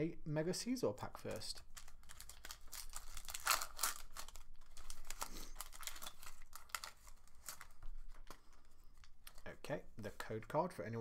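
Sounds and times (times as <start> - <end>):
foil wrapper crinkling: 1.7 - 8.4.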